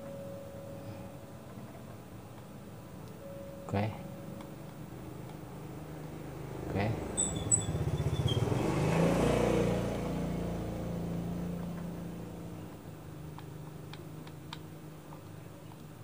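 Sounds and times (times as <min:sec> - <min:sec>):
vehicle engine passing: 0:04.9 - 0:12.9.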